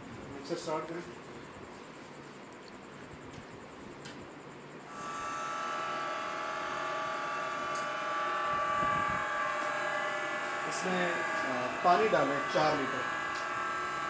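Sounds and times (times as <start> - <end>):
mixer motor whining: 4.9 - 14.0.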